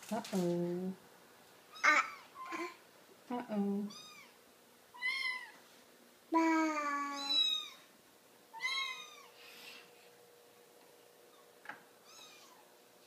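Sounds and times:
kittens meowing: 0:05.0 - 0:05.6, 0:06.9 - 0:07.9, 0:08.6 - 0:09.4, 0:11.3 - 0:12.7.

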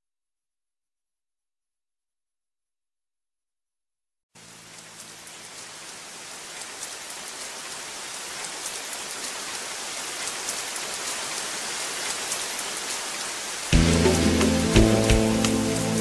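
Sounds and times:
rain falling: 0:04.4 - 0:16.0.

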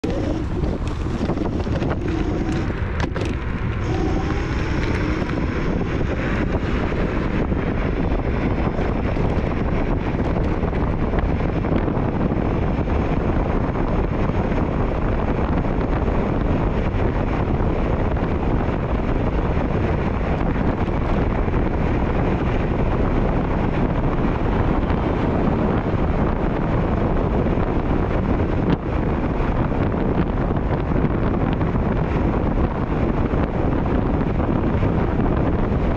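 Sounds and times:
electric motor whine: 0:00.0 - 0:06.6
wind buffeting microphone: 0:00.0 - 0:35.9.

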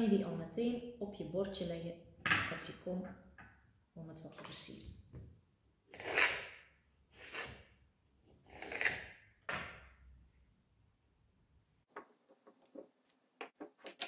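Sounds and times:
knife cutting on wooden board: 0:05.9 - 0:06.6, 0:07.2 - 0:07.7, 0:08.5 - 0:09.2.

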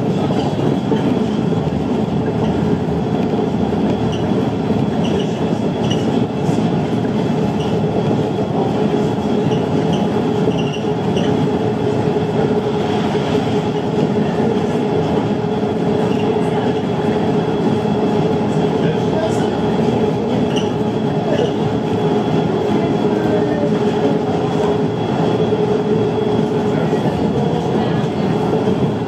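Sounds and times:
train running gear rumble: 0:00.0 - 0:29.0
light high squeaks: 0:09.5 - 0:11.4.

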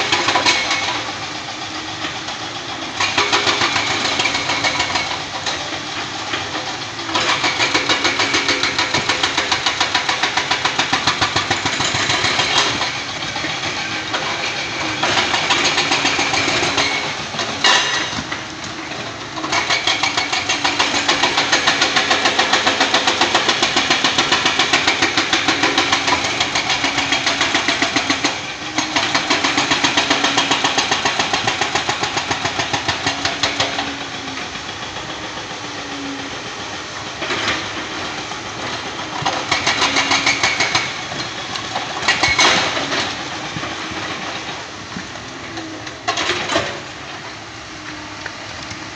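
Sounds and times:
excavator engines running: 0:00.0 - 0:48.9
rapid pounding on rock: 0:19.5 - 0:34.0, 0:37.4 - 0:44.5.

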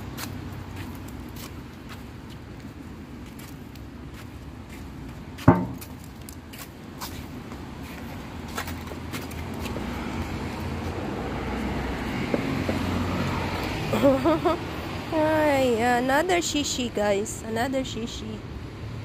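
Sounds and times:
passing vehicle rumble: 0:00.0 - 0:19.0
sharp knock: 0:05.5 - 0:06.0.

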